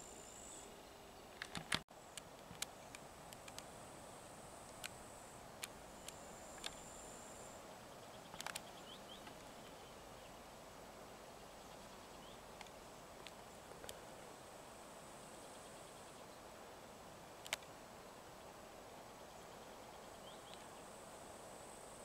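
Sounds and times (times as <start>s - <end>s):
sharp clicks: 1.4s - 3.7s, 17.4s - 17.7s.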